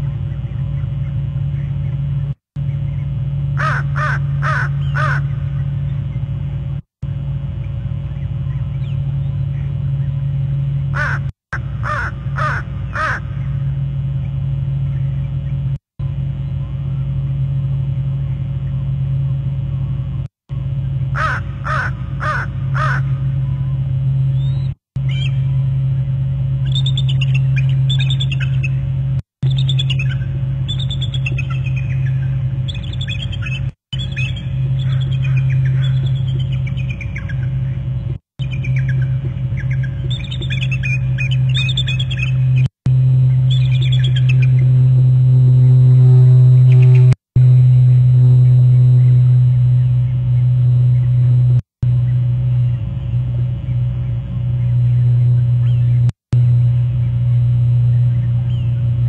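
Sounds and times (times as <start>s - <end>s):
steady low hum: 0.0s - 59.0s
crow cawing: 3.6s - 5.3s, 10.9s - 13.4s, 21.2s - 23.2s
eagles calling: 3.6s - 5.8s, 10.9s - 13.6s, 21.2s - 23.1s, 29.5s - 37.8s.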